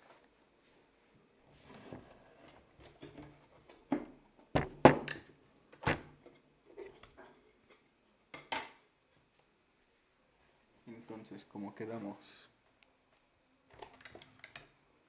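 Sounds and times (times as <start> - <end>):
joystick box knocking and clattering: 4.6 - 5.2.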